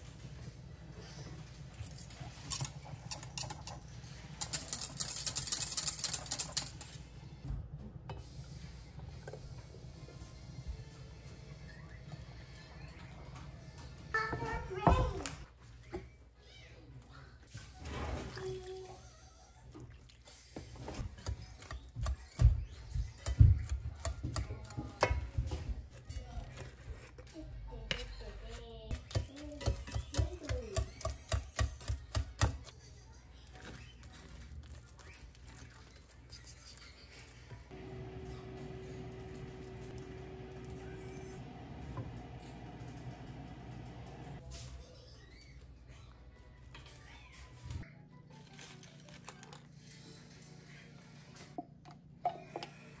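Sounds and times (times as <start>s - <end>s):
whisk clicking and scraping pot: 1.9s - 7.0s, 21.0s - 32.8s.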